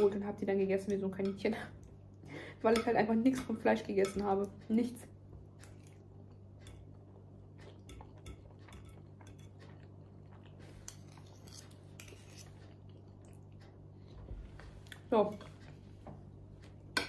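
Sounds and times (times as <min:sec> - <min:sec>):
steady low hum: 0:00.0 - 0:17.0
cutlery scraping a plate: 0:07.6 - 0:09.9, 0:10.8 - 0:12.8.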